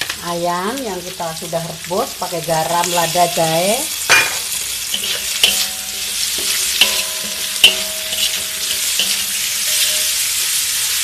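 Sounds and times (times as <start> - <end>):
meat sizzling in hot oil: 0.0 - 11.0
metal spatula clanging against wok: 4.1 - 10.6.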